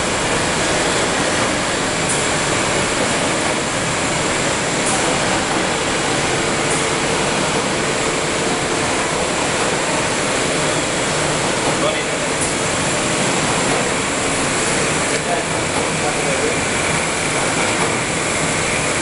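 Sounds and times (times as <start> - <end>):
conveyors and rolling machinery: 0.0 - 19.0.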